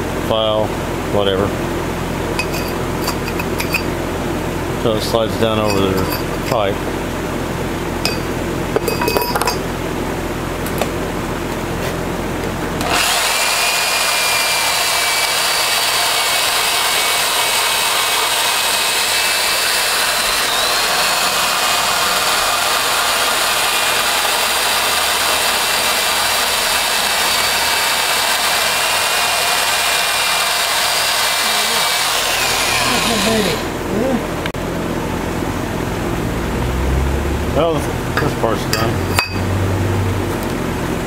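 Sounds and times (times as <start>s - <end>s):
power drill grinding metal: 2.4s - 3.9s, 5.5s - 6.6s, 8.1s - 9.6s, 12.8s - 33.9s, 38.8s - 39.5s.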